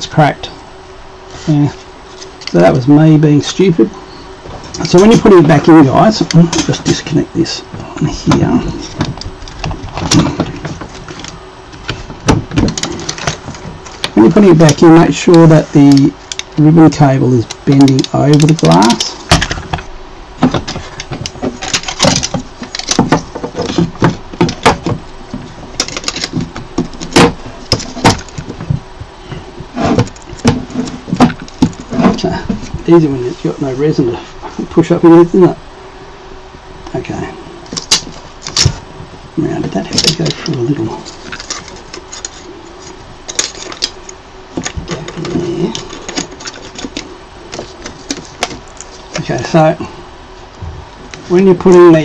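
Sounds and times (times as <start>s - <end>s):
clicks and rattles of plastic frame: 8.3s - 16.7s, 17.5s - 28.8s, 43.3s - 49.3s
sharp knocks: 11.8s - 13.8s.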